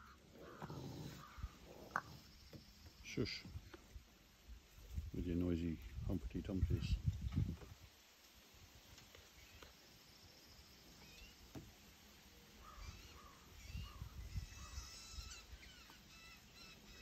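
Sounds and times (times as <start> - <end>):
faint animal calls: 0.0 - 3.6, 12.5 - 17.0.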